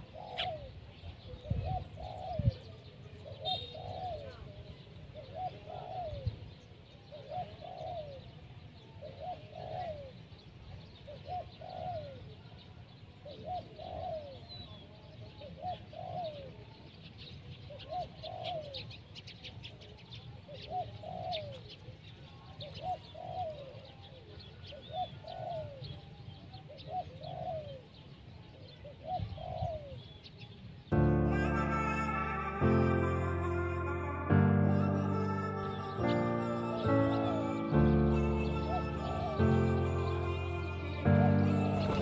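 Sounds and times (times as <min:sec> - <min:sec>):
dove cooing: 0:00.0 - 0:06.4, 0:07.0 - 0:10.2, 0:11.0 - 0:12.5, 0:13.2 - 0:14.8, 0:15.4 - 0:16.7, 0:17.7 - 0:19.0, 0:20.5 - 0:21.9, 0:22.6 - 0:27.9, 0:28.8 - 0:30.0, 0:34.7 - 0:42.0
small birds chirping: 0:00.0 - 0:42.0.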